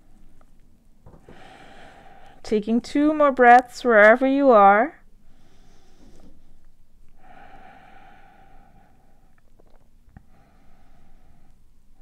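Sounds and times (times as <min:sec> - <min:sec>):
breath out through nose: 0:07.2 - 0:09.4.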